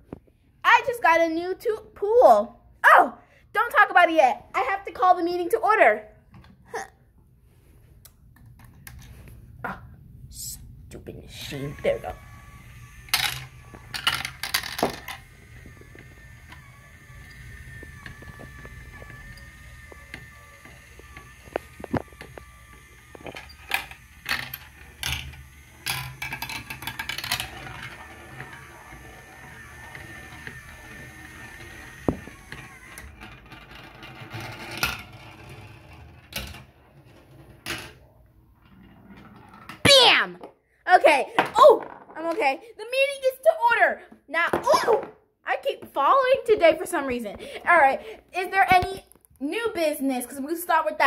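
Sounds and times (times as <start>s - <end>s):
toy chain lift whining and ticking: 11.3s - 36.0s
marble rolling through plastic track: 11.3s - 39.8s.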